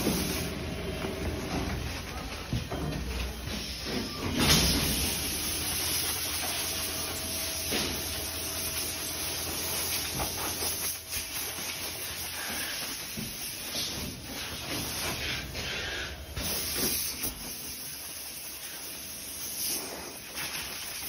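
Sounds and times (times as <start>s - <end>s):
packaging machine hissing air: 0.0s - 21.0s.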